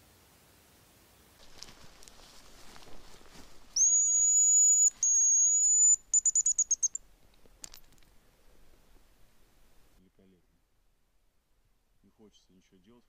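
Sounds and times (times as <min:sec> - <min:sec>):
high decoy whistle: 0:03.8 - 0:07.0.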